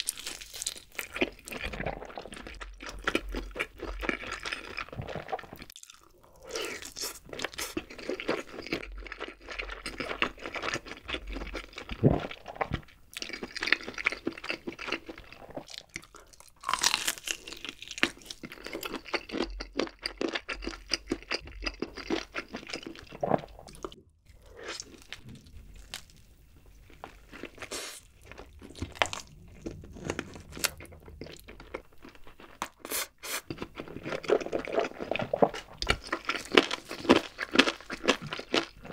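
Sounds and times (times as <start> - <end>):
person chewing with mouth open: 0.0 - 38.9.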